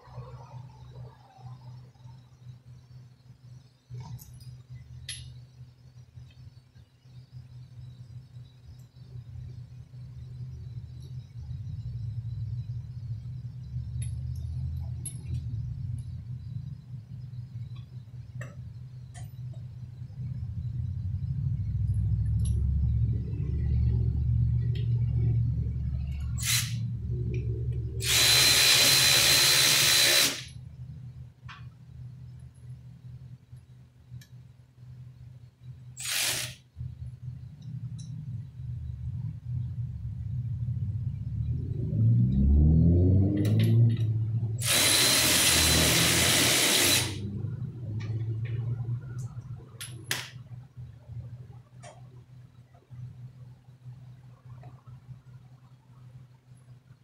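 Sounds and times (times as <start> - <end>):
steady high whine: 0.0 - 57.0
steady low hum: 0.0 - 57.0
air wrench hissing: 26.4 - 26.8, 28.0 - 30.5, 36.0 - 36.6, 44.6 - 47.2
power tool driving bolts: 26.4 - 26.8, 28.0 - 30.5, 36.0 - 36.6, 44.6 - 47.2.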